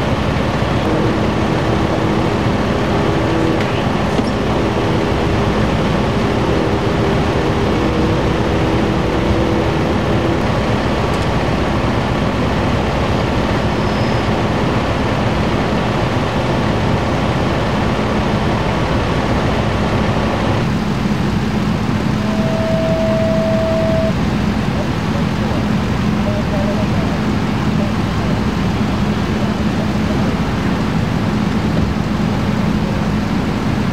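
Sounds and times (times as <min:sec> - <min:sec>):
diesel engines idling: 0:00.0 - 0:33.9
brief steady whine: 0:21.2 - 0:27.9.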